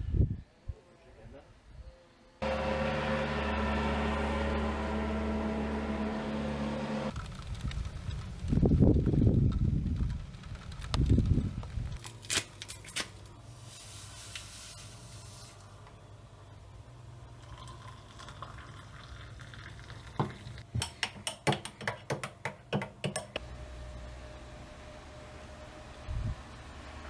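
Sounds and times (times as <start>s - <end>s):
powder poured into mug: 17.4s - 20.6s.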